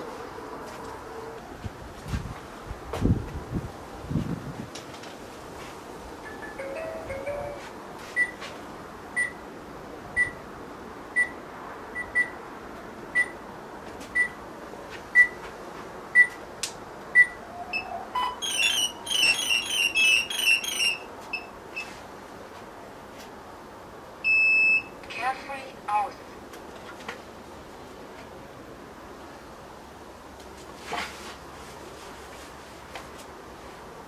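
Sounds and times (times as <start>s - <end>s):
high start-up beeps: 17.2s - 21.5s, 24.2s - 24.9s
electronics rising tone: 17.7s - 21.5s.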